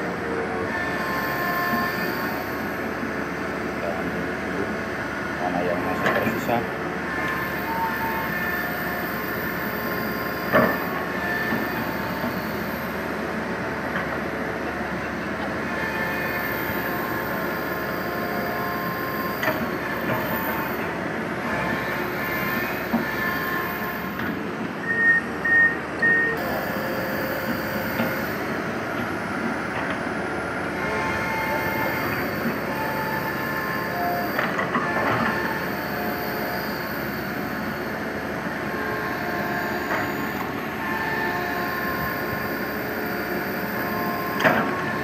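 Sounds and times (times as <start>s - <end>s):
excavator engine and hydraulics whining: 0.0s - 45.0s
short beeps: 24.9s - 28.4s.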